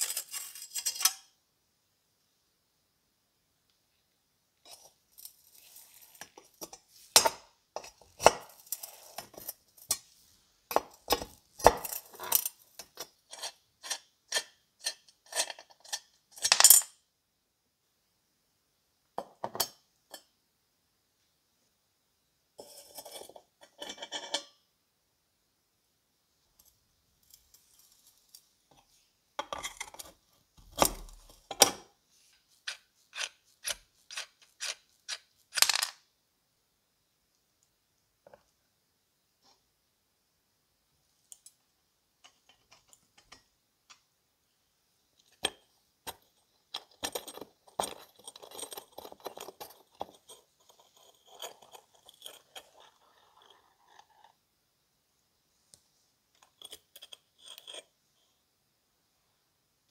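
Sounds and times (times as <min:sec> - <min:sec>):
metal scraping: 0:00.0 - 0:01.2.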